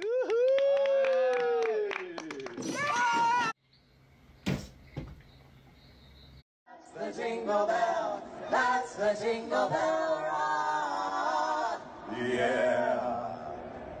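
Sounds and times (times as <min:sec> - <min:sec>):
women singing into microphones: 0:06.7 - 0:11.9.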